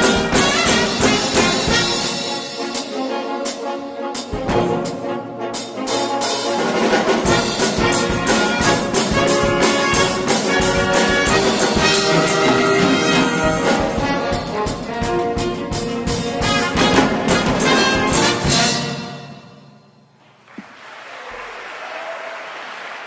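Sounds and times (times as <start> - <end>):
percussion beat: 0.0 - 2.9, 7.0 - 18.9
concert wind band playing: 0.0 - 19.7.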